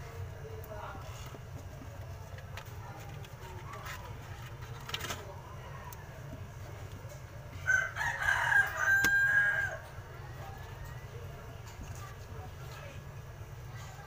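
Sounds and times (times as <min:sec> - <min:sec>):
rooster crowing: 0:07.6 - 0:10.0.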